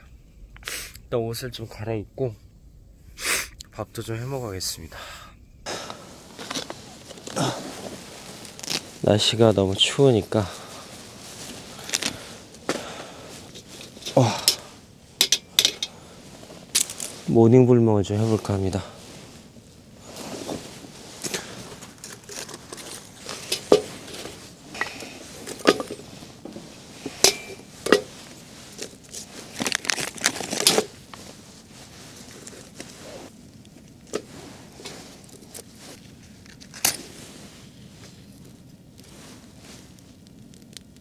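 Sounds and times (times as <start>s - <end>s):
crinkling and tearing: 6.3s - 9.9s, 10.6s - 14.5s, 20.0s - 27.1s, 27.8s - 37.0s, 38.0s - 41.0s.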